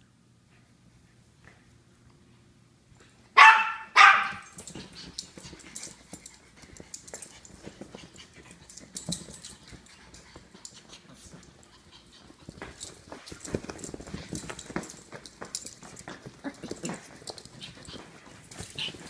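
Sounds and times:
dog barking sharply: 3.4 - 4.5
dogs scuffling on leather sofa: 4.0 - 19.0.

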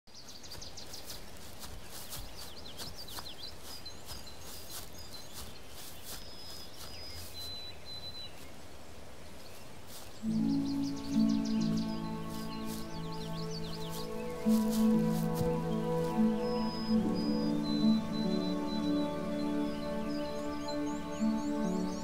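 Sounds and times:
small birds chirping: 0.1 - 22.0
hush of the woods: 0.2 - 22.0
music with low chords: 10.3 - 22.0.

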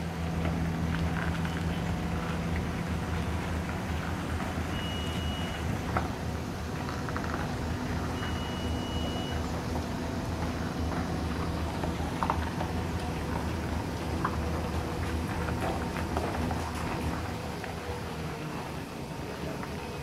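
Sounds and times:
heavy vehicle engine running: 0.0 - 20.0
high warning beeps: 4.7 - 5.7, 8.0 - 9.6.

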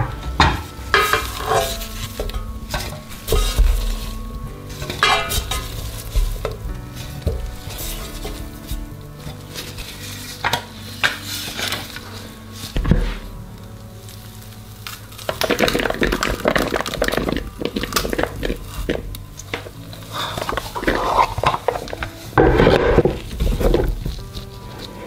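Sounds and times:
potato squishing through ricer: 0.8 - 25.0.

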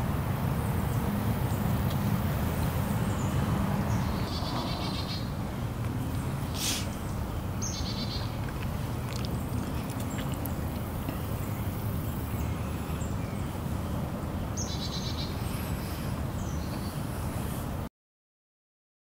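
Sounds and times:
brief high hiss: 6.5 - 7.0
stream flowing over stones: 8.2 - 11.8.

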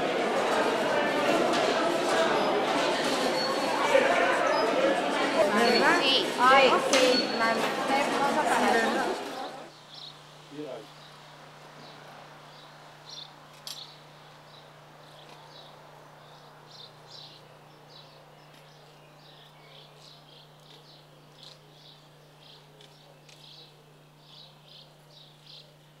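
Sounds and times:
small birds chirping: 9.3 - 26.0.

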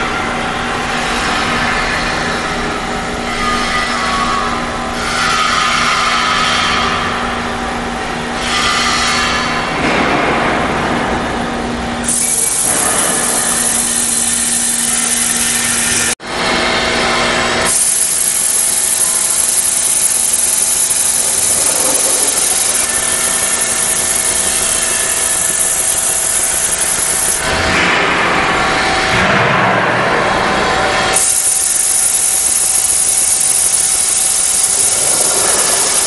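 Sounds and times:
drill bit grinding into steel: 12.1 - 16.2, 17.7 - 27.5, 31.2 - 36.0.

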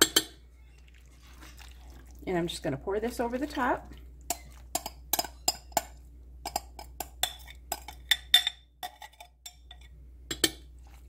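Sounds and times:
spoon clinking against glass bowl: 4.3 - 10.6.

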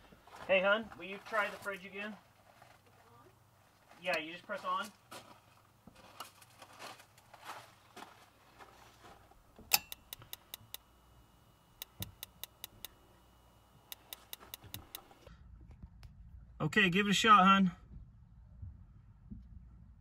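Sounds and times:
spark igniter clicking: 13.8 - 15.3.

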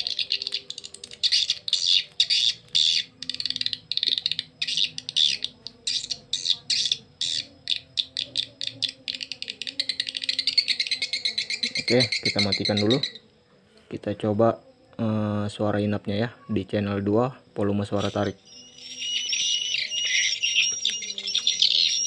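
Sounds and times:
recorded swiftlet calls: 0.0 - 13.3, 17.9 - 22.0.

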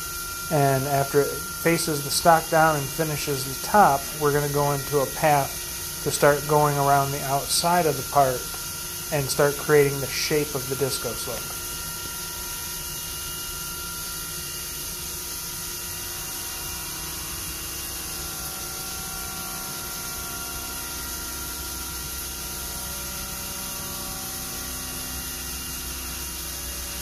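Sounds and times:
hiss of spraying coolant and cutting: 0.0 - 11.7
faint machine tones: 0.0 - 14.1.

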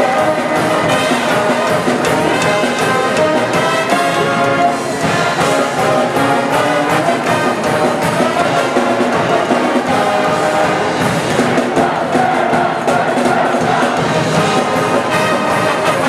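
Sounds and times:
brass pep band playing: 0.0 - 16.0
steady drum beat: 0.0 - 16.0.

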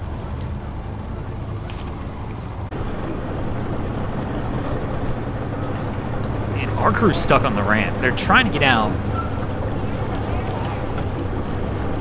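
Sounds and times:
boat engines idling: 0.0 - 12.0.

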